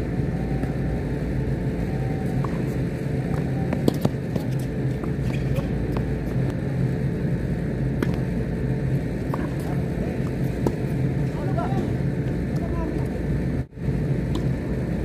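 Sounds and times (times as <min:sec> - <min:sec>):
steady low hum: 0:00.0 - 0:15.0
tennis balls struck by rackets: 0:02.2 - 0:06.5, 0:07.9 - 0:08.4, 0:09.2 - 0:11.1, 0:14.3 - 0:14.7.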